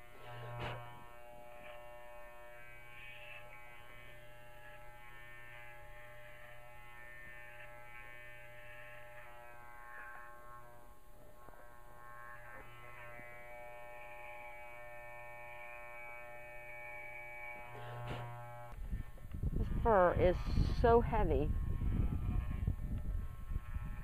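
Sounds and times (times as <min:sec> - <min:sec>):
electric clippers buzzing: 0:00.0 - 0:24.0.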